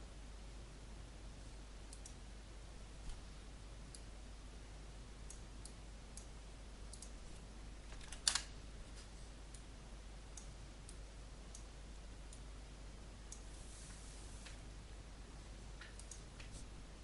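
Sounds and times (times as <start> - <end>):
low steady hum: 0.0 - 17.0
computer mouse clicks: 1.9 - 2.2, 6.9 - 8.5, 15.8 - 16.6.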